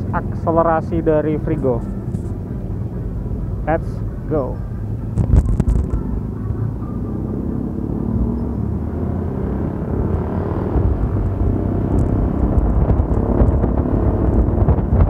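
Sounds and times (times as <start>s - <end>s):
wind buffeting microphone: 5.0s - 6.1s, 9.7s - 15.0s
scooter engine accelerating: 5.1s - 15.0s.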